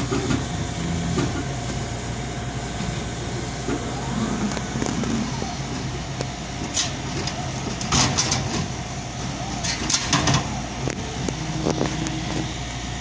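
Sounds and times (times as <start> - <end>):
faint steady whine: 0.0 - 13.0
low machine hum: 0.0 - 13.0.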